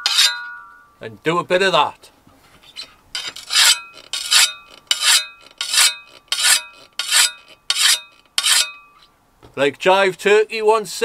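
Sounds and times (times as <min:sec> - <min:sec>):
sharpening stone scraping metal blade: 0:00.0 - 0:00.7, 0:02.7 - 0:09.1.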